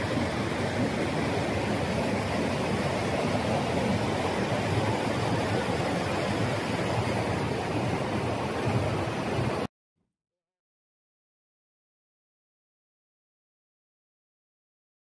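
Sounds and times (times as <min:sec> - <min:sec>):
stream rushing over rocks: 0:00.0 - 0:09.7.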